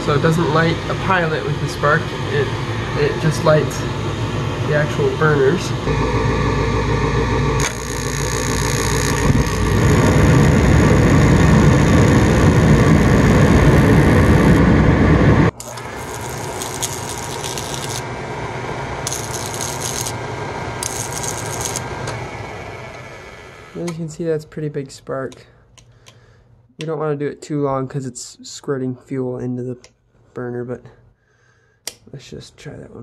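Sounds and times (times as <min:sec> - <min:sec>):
furnace flame and blower rushing: 0:00.0 - 0:23.9
oil burner humming: 0:00.0 - 0:23.9
hissing electric spark: 0:07.6 - 0:14.7, 0:15.5 - 0:18.0, 0:19.0 - 0:20.2, 0:20.8 - 0:21.9.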